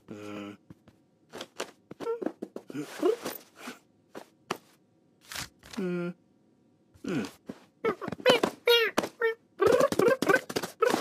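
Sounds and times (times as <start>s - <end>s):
cartoon character vocal noises: 7.0s - 11.0s.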